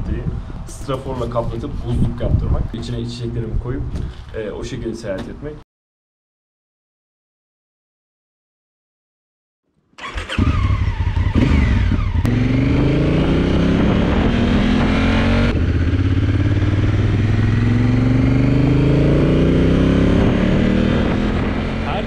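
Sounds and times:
motorcycle engine accelerating: 10.0s - 22.0s.

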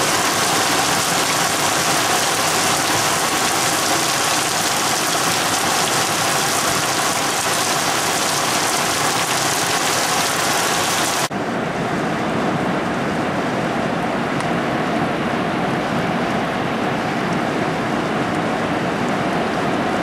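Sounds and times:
heavy rain pouring: 0.0s - 11.3s
wind: 0.0s - 20.0s.

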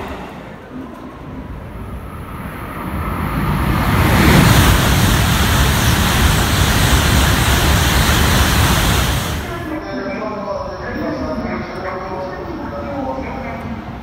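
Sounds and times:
high-speed train passing: 0.0s - 14.0s.

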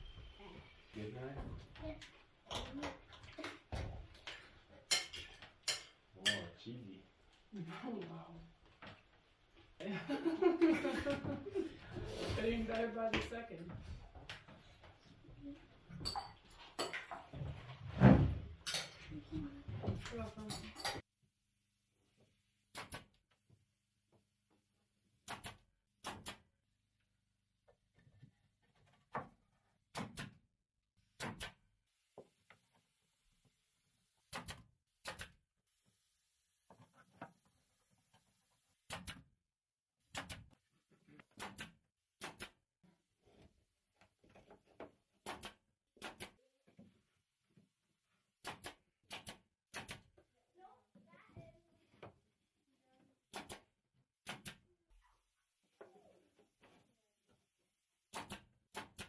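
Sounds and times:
nail gun driving nails into wood: 25.2s - 26.5s, 29.9s - 30.4s, 31.1s - 31.6s, 34.3s - 35.4s, 38.9s - 39.2s, 40.1s - 40.6s, 41.3s - 42.6s, 45.2s - 46.3s, 48.4s - 50.1s, 53.3s - 54.6s, 58.1s - 59.0s.

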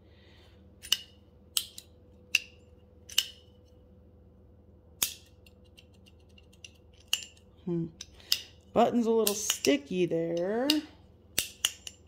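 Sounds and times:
folding knife metallic clicks: 0.8s - 3.5s, 9.2s - 12.0s.

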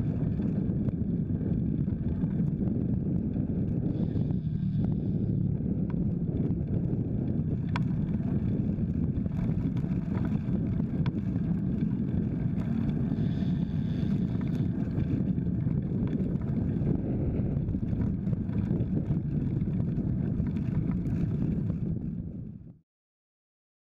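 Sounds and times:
wind rumble on microphone: 0.0s - 22.8s
faint clicks: 7.7s - 8.0s.

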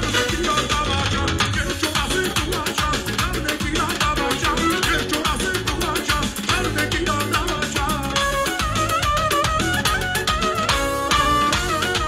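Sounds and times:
dhol and drum kit beat: 0.0s - 12.0s
fast ornamented melody: 0.0s - 12.0s.

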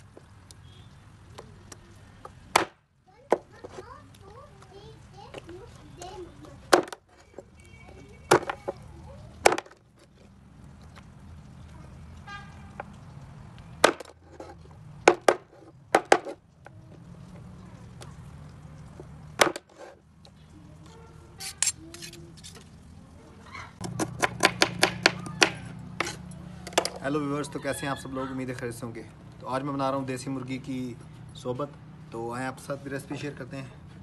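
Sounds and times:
knife chopping on wooden board: 23.8s - 26.2s.

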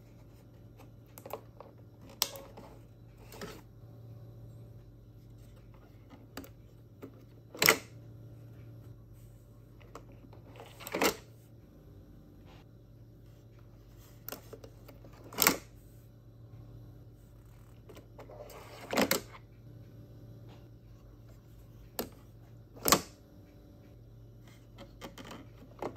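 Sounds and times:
faint low hum: 0.0s - 25.9s.

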